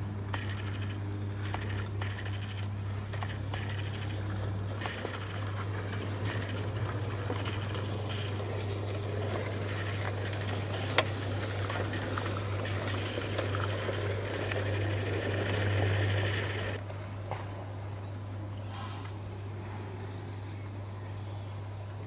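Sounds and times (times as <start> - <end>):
model railcar humming: 0.0 - 16.9
wheel noise on rails: 0.0 - 17.8.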